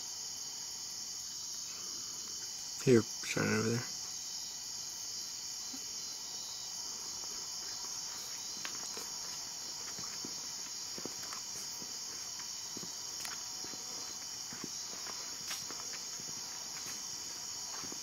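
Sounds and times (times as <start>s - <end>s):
crickets chirping: 0.0s - 18.0s
faint footsteps on stone: 7.0s - 18.0s.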